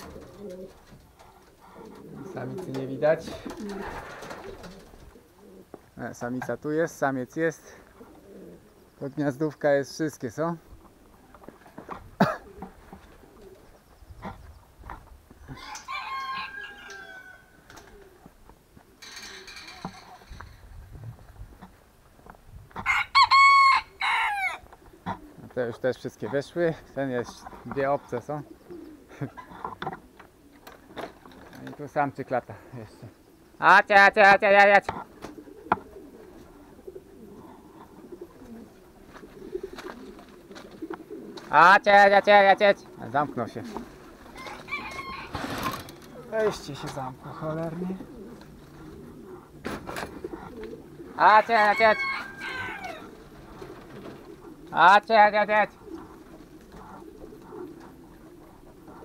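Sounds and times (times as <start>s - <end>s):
pigeons cooing: 0.0s - 22.0s, 22.7s - 59.0s
rooster crowing: 15.5s - 17.7s, 22.8s - 24.6s, 44.4s - 45.7s, 51.2s - 53.1s
soft footsteps: 37.8s - 41.5s.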